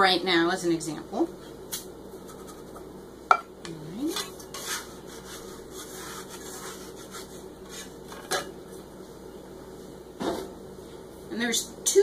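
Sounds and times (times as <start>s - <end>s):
dough scraping on wooden board: 4.5s - 8.3s.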